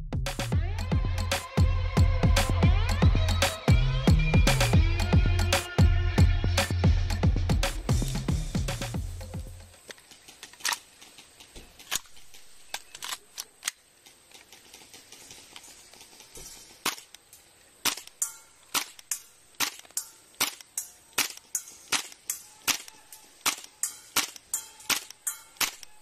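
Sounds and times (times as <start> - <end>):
airsoft rifle shots popping: 16.8 - 17.2, 17.8 - 25.9.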